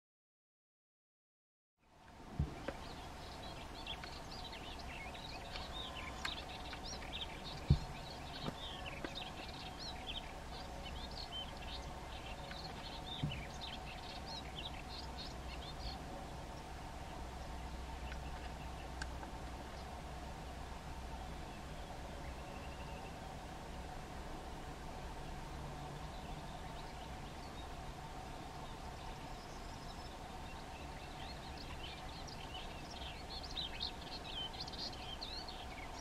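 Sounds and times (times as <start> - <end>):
faint steady hum: 1.8 - 36.0
warbler singing: 1.8 - 36.0
sharp low thump: 7.7 - 7.9.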